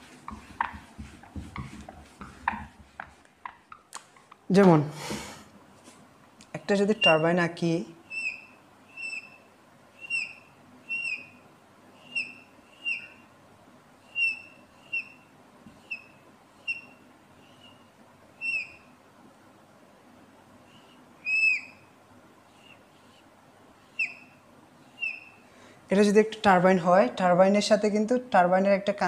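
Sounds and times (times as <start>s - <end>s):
marker squeaking on whiteboard: 0.0s - 4.5s, 6.8s - 7.5s, 8.1s - 11.4s, 12.0s - 13.3s, 14.1s - 18.9s, 20.8s - 21.9s, 22.5s - 25.4s.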